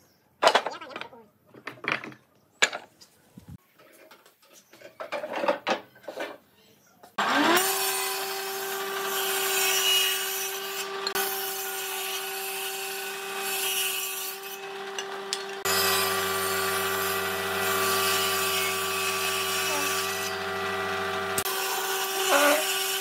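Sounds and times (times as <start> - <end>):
table saw ripping wood: 7.2 - 23.0
motor hum: 14.6 - 21.4.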